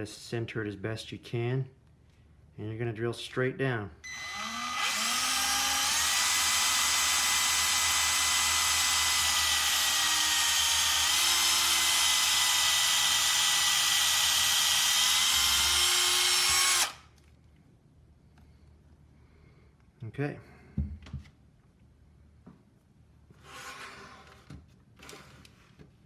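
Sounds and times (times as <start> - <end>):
cordless drill whining: 4.0 - 17.2.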